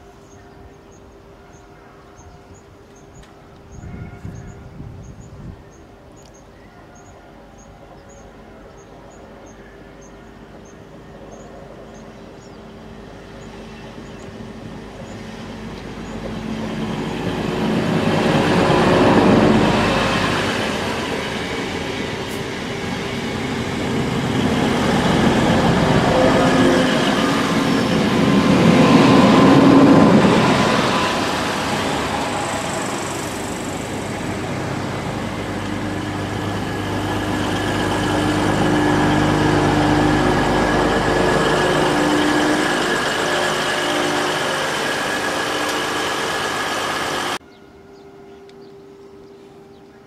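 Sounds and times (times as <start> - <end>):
diesel train engines passing: 0.0 - 50.0
birds chirping: 0.2 - 50.0
train wheels on rails: 11.9 - 47.4.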